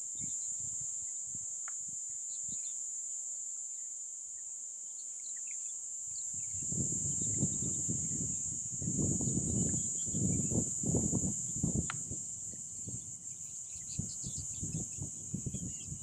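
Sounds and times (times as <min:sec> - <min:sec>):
insects droning: 0:00.0 - 0:16.0
bird chirps: 0:13.3 - 0:16.0.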